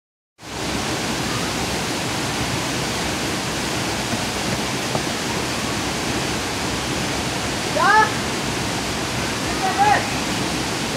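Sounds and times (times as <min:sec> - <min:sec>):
waterfall rushing: 0:00.4 - 0:10.9.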